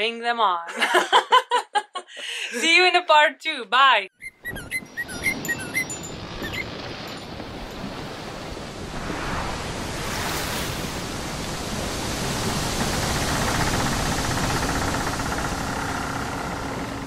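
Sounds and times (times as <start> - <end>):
steady rushing noise: 8.1 - 17.0.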